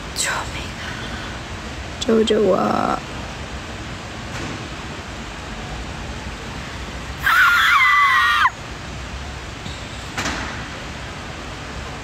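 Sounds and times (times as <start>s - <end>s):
woman screaming: 7.2s - 8.6s.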